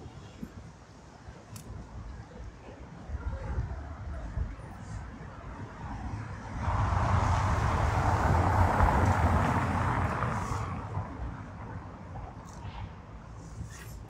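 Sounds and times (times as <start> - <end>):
vehicle passing by: 6.6 - 11.2.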